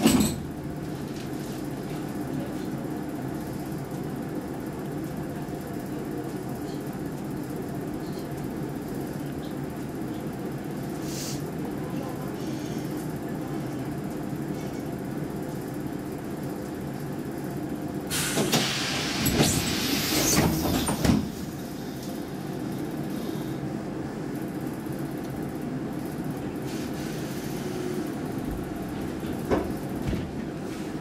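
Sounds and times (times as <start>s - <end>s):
train interior rumble: 0.0s - 31.0s
train hissing and clattering: 10.8s - 11.7s, 18.0s - 23.9s, 26.1s - 31.0s.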